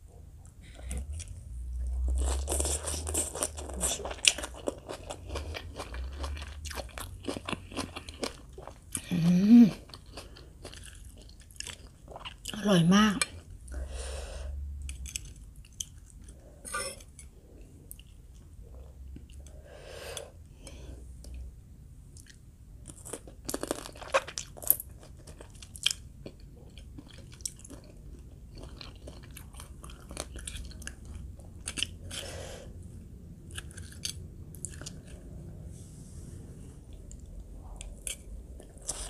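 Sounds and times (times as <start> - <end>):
wet chewing and crunching: 0.4 - 12.6, 22.2 - 32.3, 33.4 - 35.4, 36.8 - 39.0.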